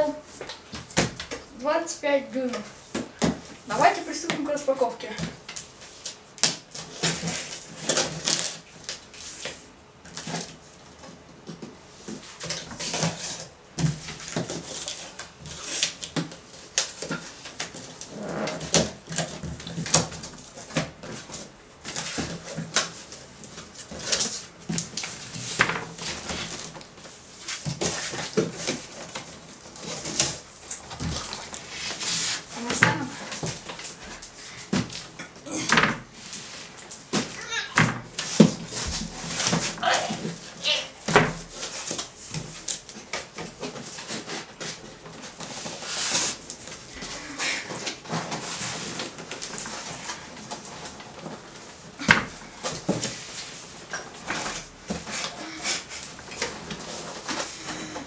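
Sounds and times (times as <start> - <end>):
cardboard scraping tearing and rustling: 6.5 - 9.1, 36.1 - 58.0.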